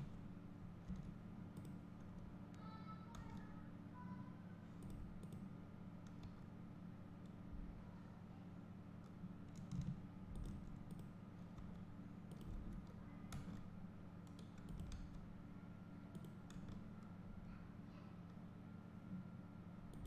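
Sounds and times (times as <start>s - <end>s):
steady low hum: 0.0s - 20.0s
computer mouse clicks: 0.8s - 2.1s, 4.8s - 5.4s, 9.0s - 15.2s, 16.1s - 16.8s
keyboard clicks: 9.0s - 15.2s, 16.1s - 16.8s.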